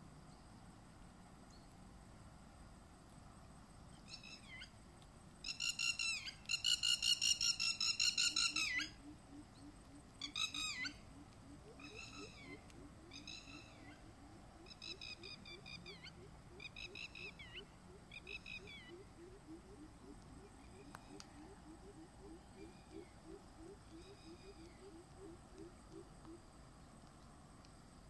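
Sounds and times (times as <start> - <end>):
bird calling in rapid runs: 5.5 - 26.4.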